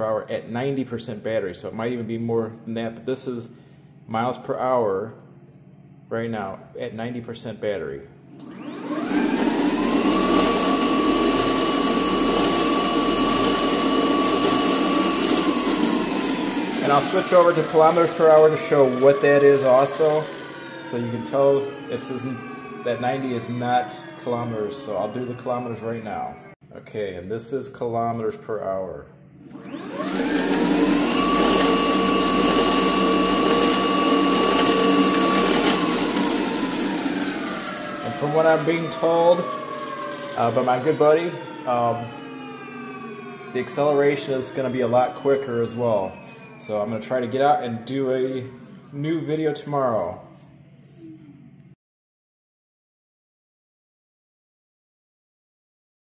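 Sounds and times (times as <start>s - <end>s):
steady whirring: 8.3s - 26.5s, 29.5s - 49.4s
electric scooter motor whine: 8.3s - 26.6s, 29.4s - 48.7s.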